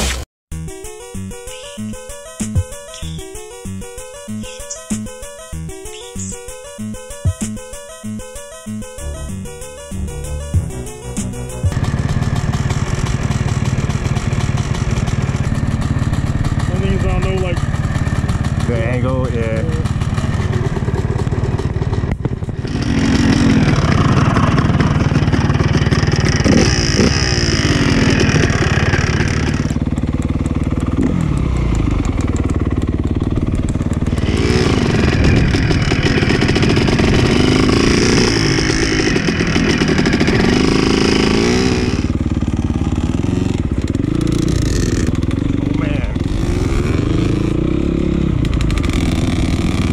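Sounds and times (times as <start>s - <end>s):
motocross bike engine revving: 10.1s - 49.9s.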